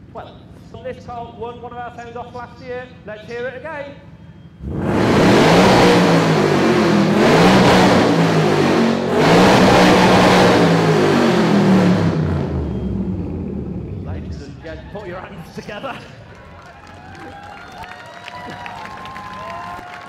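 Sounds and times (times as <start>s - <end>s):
car engine revving: 4.1s - 16.2s.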